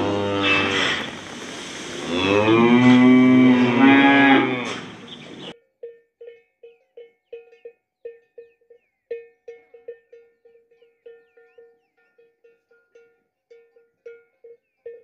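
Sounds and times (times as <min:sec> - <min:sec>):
cow mooing: 0:00.0 - 0:01.2, 0:02.0 - 0:05.1
outdoor background noise: 0:00.0 - 0:15.0.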